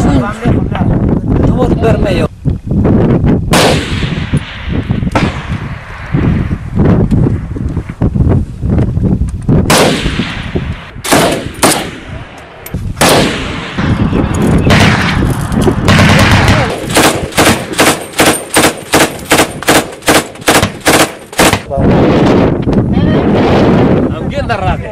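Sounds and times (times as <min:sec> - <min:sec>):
gunshots: 0:03.5 - 0:06.5, 0:09.7 - 0:21.7.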